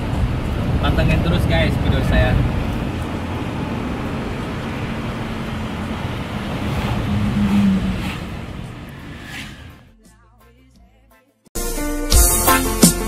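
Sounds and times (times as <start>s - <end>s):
car engine and road noise: 0.0s - 10.1s.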